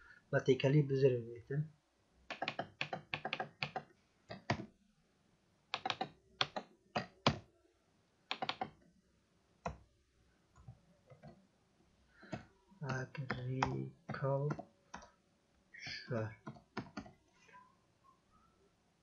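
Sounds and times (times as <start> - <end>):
typing on computer keyboard: 2.3 - 4.7, 5.8 - 7.4, 8.3 - 8.8.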